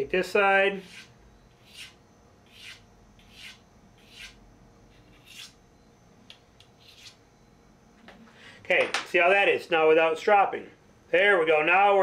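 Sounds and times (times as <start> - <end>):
blade scraping on sharpening hone: 0.8 - 5.6, 6.8 - 7.2.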